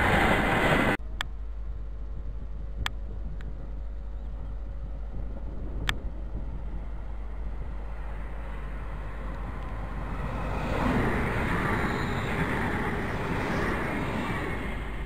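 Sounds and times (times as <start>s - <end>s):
electric train approaching: 0.0s - 1.0s, 4.6s - 15.0s.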